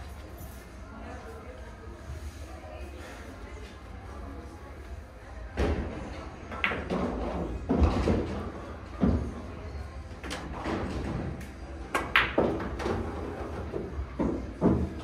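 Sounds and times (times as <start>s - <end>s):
murmur of voices: 0.0s - 15.0s.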